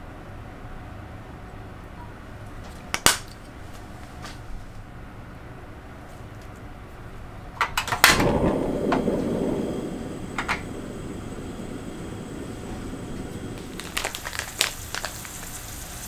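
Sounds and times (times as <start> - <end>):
burner flame rushing: 7.9 - 16.0.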